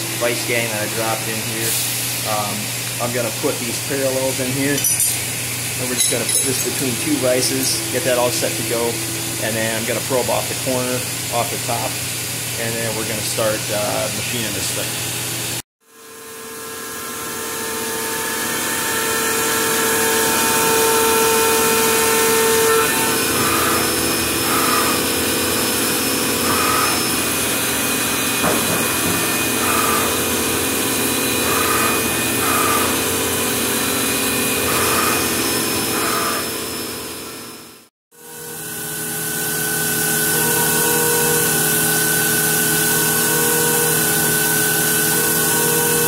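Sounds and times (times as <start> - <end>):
milling machine spindle whine: 0.0 - 14.9, 16.6 - 46.0
metal cutting noise: 0.0 - 15.0, 16.8 - 46.0
hiss of coolant: 1.6 - 2.7.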